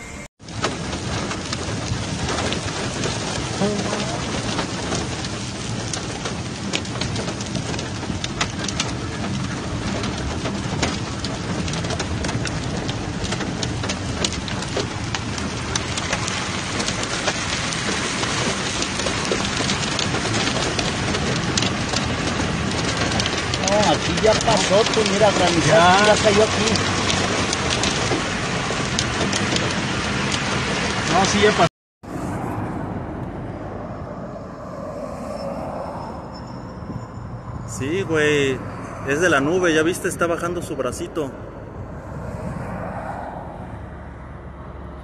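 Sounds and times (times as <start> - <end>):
heavy rain on car body: 0.4 - 31.7.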